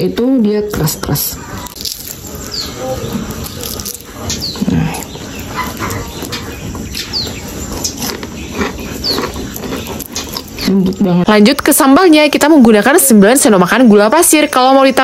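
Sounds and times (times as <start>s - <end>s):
bird chirping: 0.0s - 15.0s
fried crust crackling: 1.5s - 6.4s.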